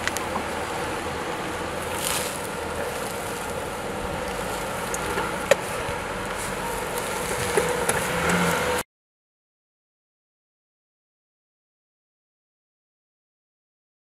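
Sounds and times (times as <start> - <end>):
suv engine running slowly: 0.0 - 8.8.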